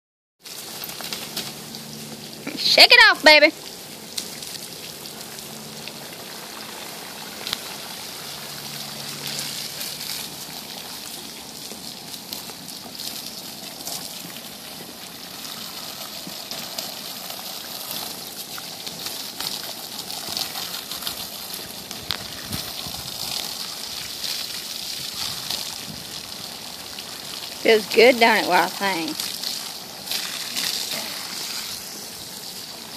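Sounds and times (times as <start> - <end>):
hose spraying water: 0.4 - 32.9.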